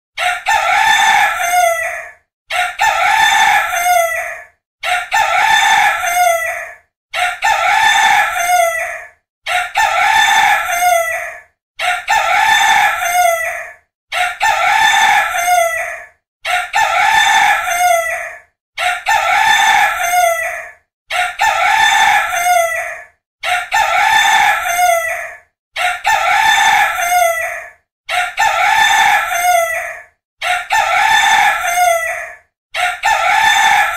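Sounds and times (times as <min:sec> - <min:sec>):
rooster crowing: 0:00.2 - 0:06.6, 0:07.3 - 0:11.3, 0:30.5 - 0:33.9.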